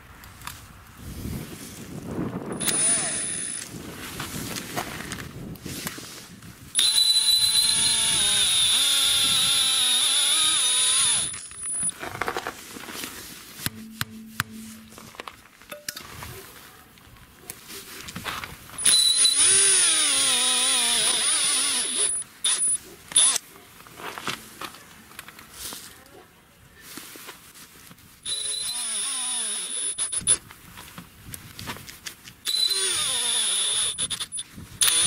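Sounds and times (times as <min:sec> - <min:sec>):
electric jigsaw motor whining: 0:02.6 - 0:03.7, 0:06.8 - 0:11.9, 0:18.8 - 0:23.4, 0:28.3 - 0:30.2, 0:32.5 - 0:35.0.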